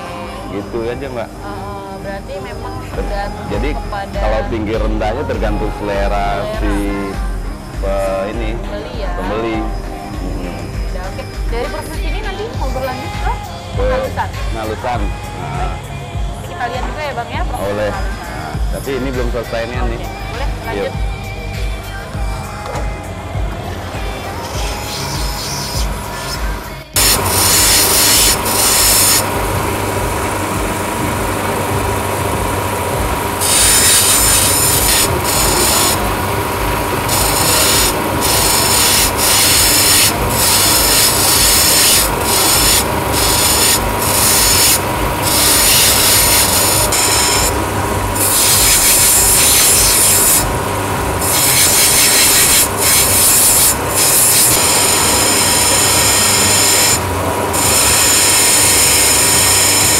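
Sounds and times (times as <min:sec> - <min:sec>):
motor hum and whine: 0:00.0 - 0:59.9
stone grinding on wheel: 0:27.0 - 0:30.0, 0:33.0 - 0:47.6, 0:48.2 - 0:50.5, 0:51.1 - 0:59.9.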